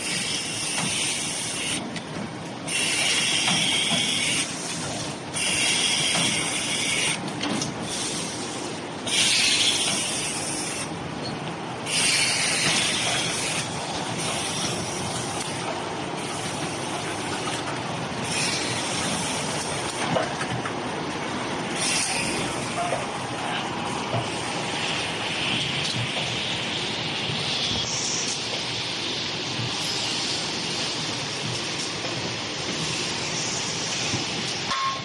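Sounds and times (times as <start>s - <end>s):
machine hissing bursts: 2.7s - 4.6s, 5.3s - 7.2s, 7.8s - 10.9s, 11.8s - 15.1s, 18.2s - 19.5s.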